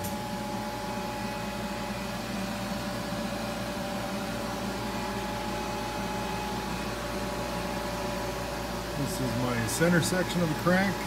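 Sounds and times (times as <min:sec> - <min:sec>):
air compressor drone: 0:00.0 - 0:11.0.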